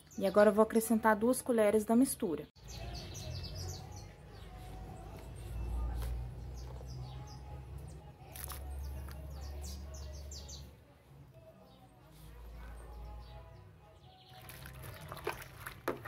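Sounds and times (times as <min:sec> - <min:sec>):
small birds chirping: 0:02.1 - 0:15.8.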